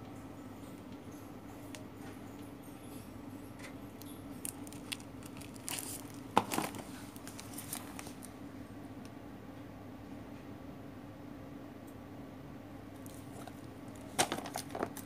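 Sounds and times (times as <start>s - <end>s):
steady low hum: 0.0s - 15.0s
plastic parcels crinkling: 4.0s - 8.4s, 13.0s - 15.0s.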